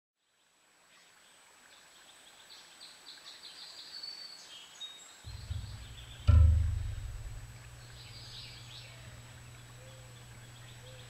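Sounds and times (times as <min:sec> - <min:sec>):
songbirds chirping: 0:01.0 - 0:11.0
low rumble: 0:05.3 - 0:09.5.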